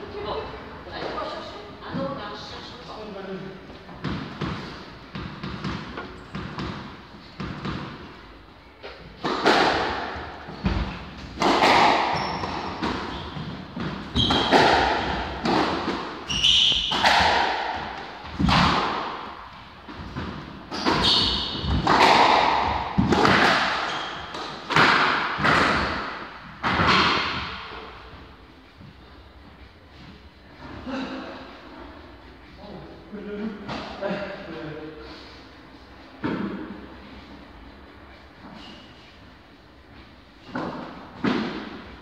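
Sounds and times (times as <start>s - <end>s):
squash ball hits: 9.2s - 27.8s, 40.5s - 41.8s
shoe soles squeaking on floor: 11.9s - 15.3s, 16.2s - 17.1s, 20.6s - 21.8s, 23.8s - 24.5s, 38.4s - 39.1s.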